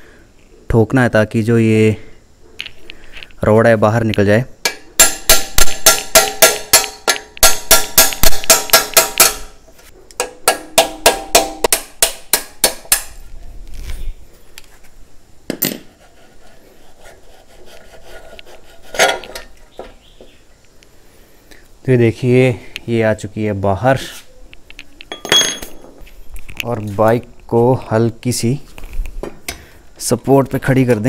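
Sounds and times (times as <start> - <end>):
ringing metal-on-metal knocks: 4.6 - 9.5, 10.2 - 13.1.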